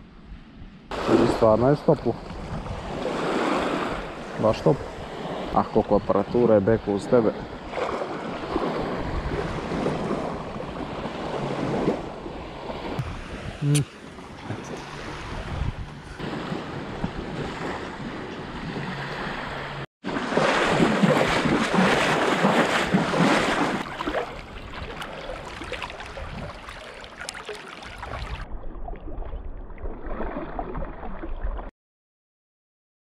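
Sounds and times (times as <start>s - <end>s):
small waves lapping: 0.9s - 31.3s
wind buffeting microphone: 2.1s - 6.1s, 7.3s - 19.8s, 20.6s - 26.8s.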